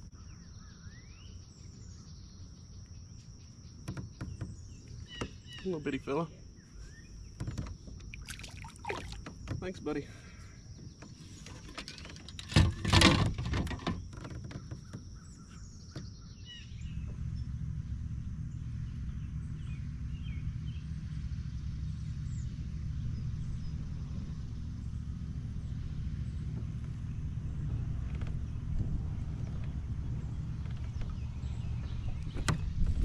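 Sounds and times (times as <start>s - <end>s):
birds chirping faintly: 0.0s - 33.0s
water splashing beside a kayak: 7.4s - 16.2s
steady low rumble: 15.0s - 33.0s.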